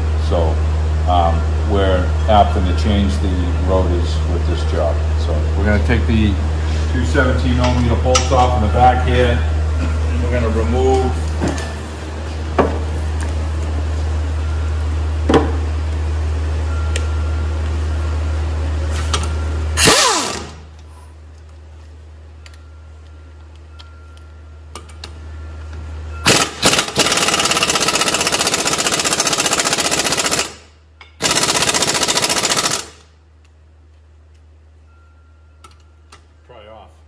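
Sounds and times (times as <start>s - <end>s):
impact wrench hammering: 19.8s - 20.7s, 26.2s - 33.0s.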